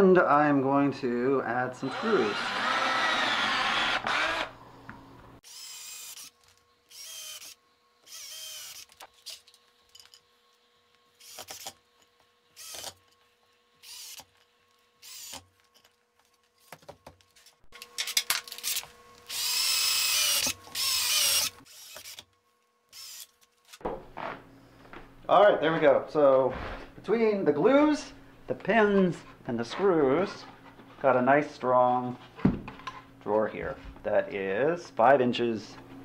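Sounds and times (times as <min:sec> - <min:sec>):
cordless drill driving screws: 0:01.8 - 0:04.5, 0:05.4 - 0:09.4, 0:11.2 - 0:11.8, 0:12.6 - 0:13.0, 0:13.8 - 0:14.3, 0:15.0 - 0:15.4, 0:18.6 - 0:22.2.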